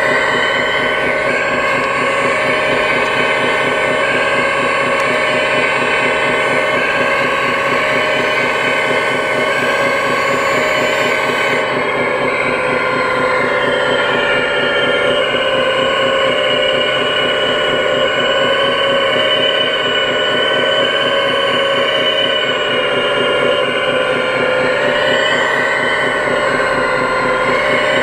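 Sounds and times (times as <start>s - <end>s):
hydraulic pump whine: 0.0s - 28.0s.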